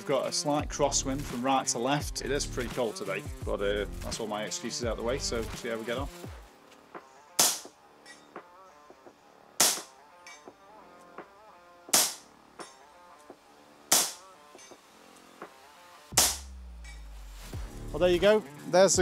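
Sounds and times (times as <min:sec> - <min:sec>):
air rifle shots: 0:07.4 - 0:07.8, 0:09.6 - 0:10.0, 0:11.9 - 0:12.3, 0:13.9 - 0:14.2, 0:16.2 - 0:16.5.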